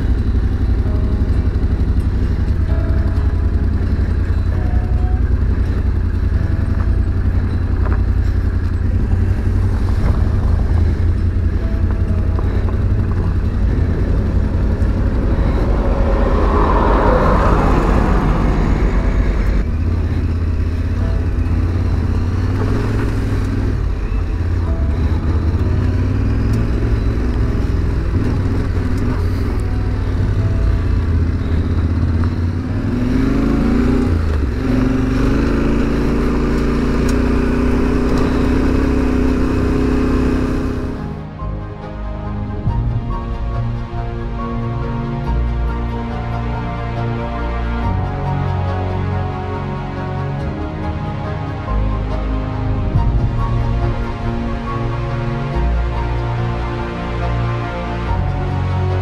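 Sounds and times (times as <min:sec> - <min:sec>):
motorcycle engine running: 0:00.0 - 0:41.3.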